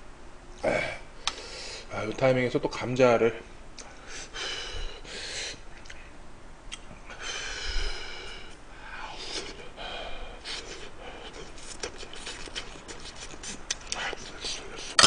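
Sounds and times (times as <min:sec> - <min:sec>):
man eating with mouth noises: 0:06.7 - 0:15.0
breathy huffs: 0:07.1 - 0:11.6.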